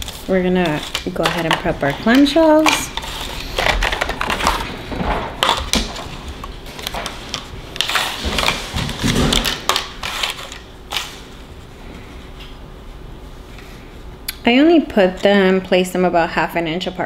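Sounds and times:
plastic crinkling: 0.0 - 11.4.

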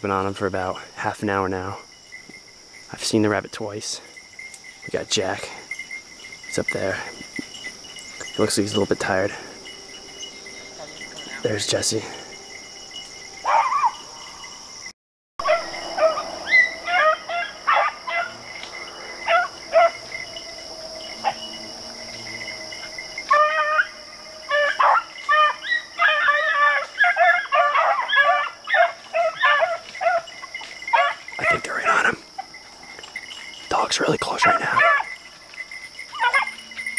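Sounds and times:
insects buzzing: 0.0 - 36.9
beagles baying: 3.7 - 14.6, 15.4 - 36.9.

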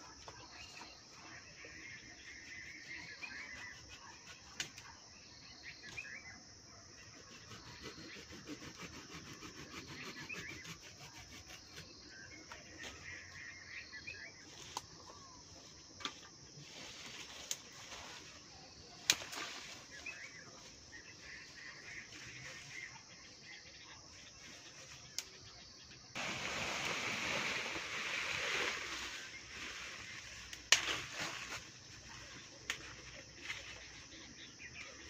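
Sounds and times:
insect buzz: 7.0 - 35.0
leafy branches rustling: 16.5 - 21.0, 26.2 - 34.1
twig snaps: 19.0 - 19.6, 25.1 - 25.4, 30.5 - 31.0, 32.6 - 33.0.

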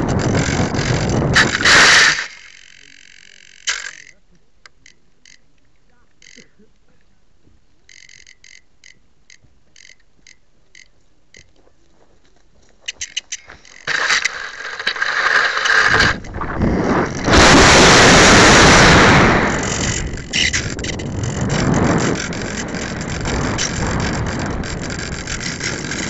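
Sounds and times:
wind rushing over microphone: 0.0 - 2.2, 15.7 - 26.0
camera handling and scraping: 12.9 - 16.4, 19.7 - 21.4.

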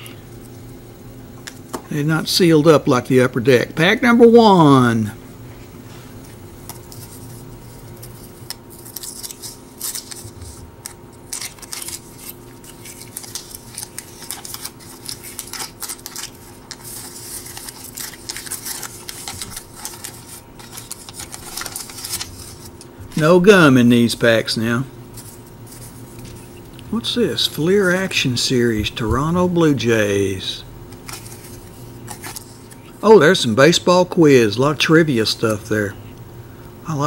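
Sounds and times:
wax paper wrapper crinkling: 6.6 - 23.4, 25.1 - 29.4, 30.9 - 33.0.

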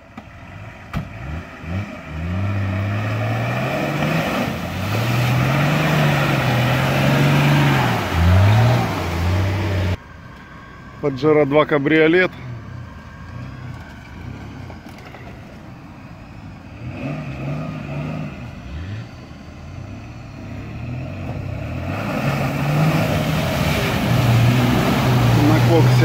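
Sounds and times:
tyres splashing through mud: 0.0 - 10.0, 20.4 - 26.0
engine revving: 0.6 - 10.0, 16.7 - 26.0.

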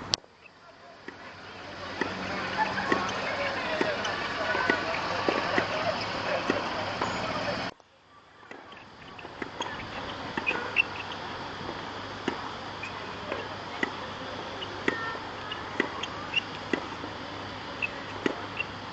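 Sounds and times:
outdoor hiss: 0.0 - 18.9
tennis balls struck and bouncing: 1.0 - 7.4, 8.5 - 12.5, 13.2 - 14.0, 14.6 - 17.1, 17.8 - 18.8.

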